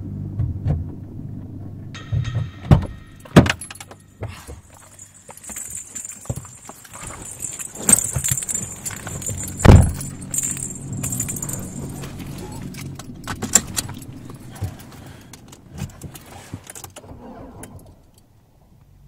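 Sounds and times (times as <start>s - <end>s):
car keys jangling: 3.1s - 18.3s
small clicks and rattles: 4.6s - 17.0s
car door slamming: 7.1s - 16.6s.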